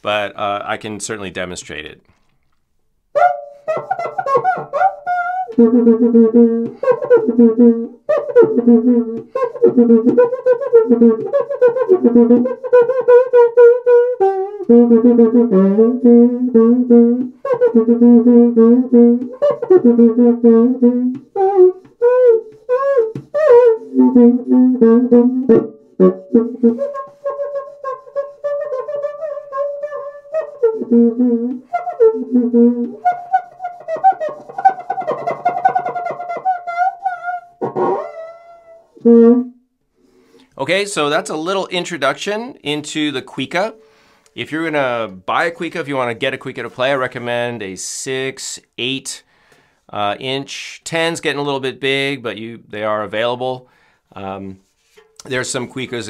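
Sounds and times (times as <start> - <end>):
friction drum squeaking: 14.7 - 38.4.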